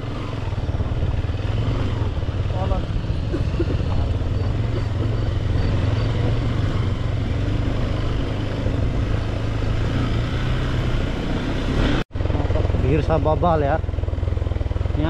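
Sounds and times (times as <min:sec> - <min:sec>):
motorcycle engine running: 0:00.0 - 0:15.0
road and wind noise: 0:00.0 - 0:15.0.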